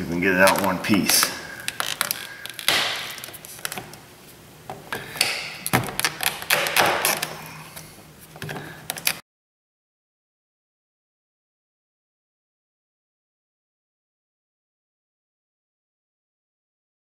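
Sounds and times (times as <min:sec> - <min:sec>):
screwdriver scraping and clicking on plastic: 0:05.2 - 0:07.4, 0:08.4 - 0:09.2.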